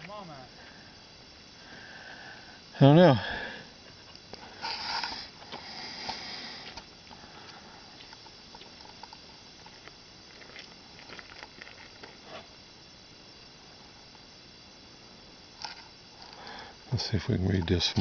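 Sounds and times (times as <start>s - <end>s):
breathy hiss: 0.0s - 9.6s, 15.2s - 18.0s
low hiss: 0.0s - 18.0s.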